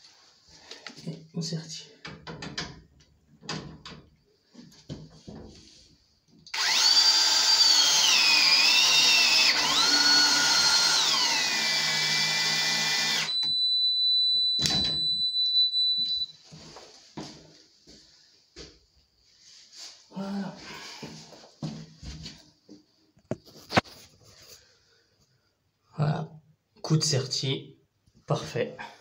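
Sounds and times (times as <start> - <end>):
press tool motor whine: 6.5 - 14.0.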